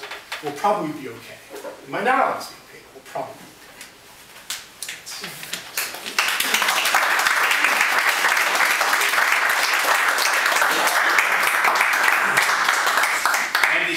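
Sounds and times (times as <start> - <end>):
audience applause: 5.8 - 13.9.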